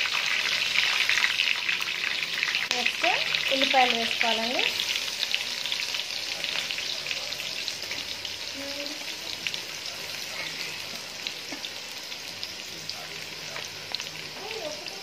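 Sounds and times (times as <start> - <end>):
onions sizzling in hot oil: 0.0 - 15.0.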